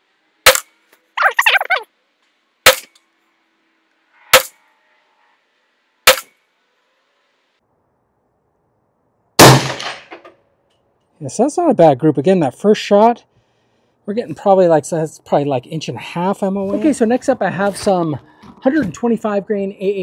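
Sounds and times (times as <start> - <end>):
pistol gunshots echoing: 9.4 - 10.0.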